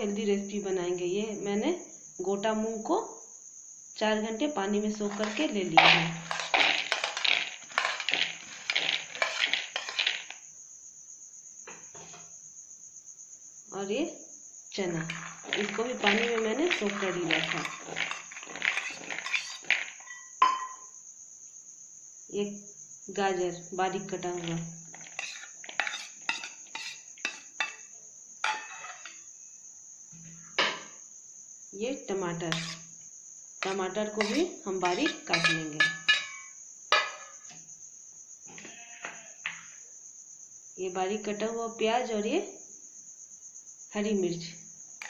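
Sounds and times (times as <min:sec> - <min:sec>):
crickets chirping: 0:00.0 - 0:45.0
wet beans pattering into bowl: 0:04.9 - 0:10.4, 0:15.0 - 0:20.1, 0:33.6 - 0:36.5.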